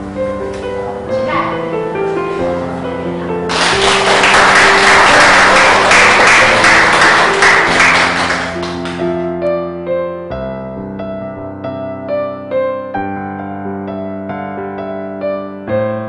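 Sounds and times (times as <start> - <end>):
soft piano music: 0.0 - 16.0
audience clapping: 3.5 - 9.2.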